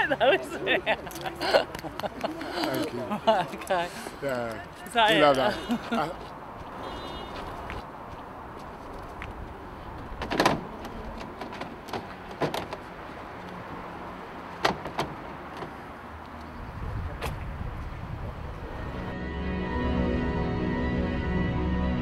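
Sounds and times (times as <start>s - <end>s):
music: 19.0s - 22.0s.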